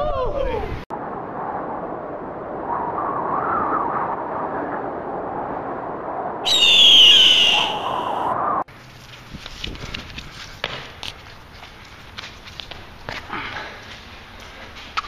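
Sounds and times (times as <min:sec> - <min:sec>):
rushing wind with whistle: 0:01.0 - 0:08.7
bird of prey screech: 0:06.5 - 0:08.3.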